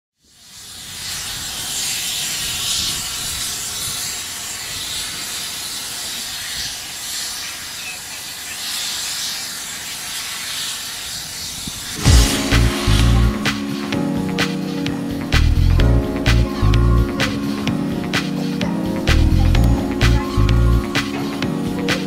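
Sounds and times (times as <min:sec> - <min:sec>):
steam hissing: 0:00.2 - 0:22.0
loud music: 0:12.0 - 0:22.0.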